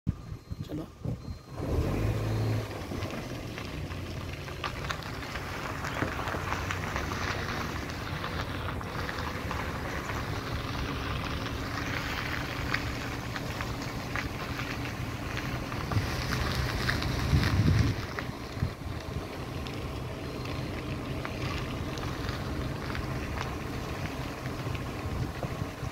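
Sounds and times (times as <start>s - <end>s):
wind buffeting microphone: 5.2s - 19.7s, 21.4s - 25.9s.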